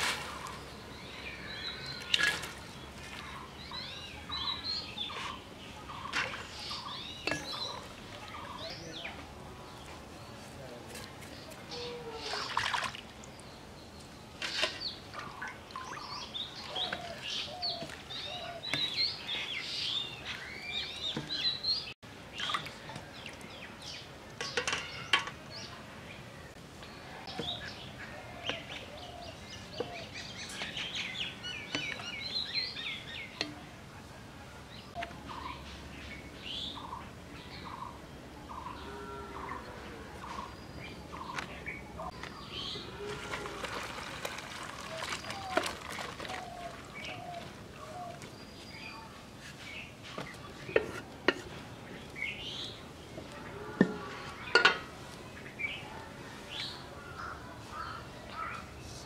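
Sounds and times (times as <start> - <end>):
small birds chirping: 0.3 - 33.8.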